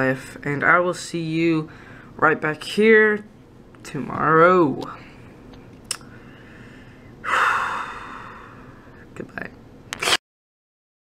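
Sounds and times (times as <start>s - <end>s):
person breathing heavily: 1.7s - 2.2s, 6.1s - 9.1s.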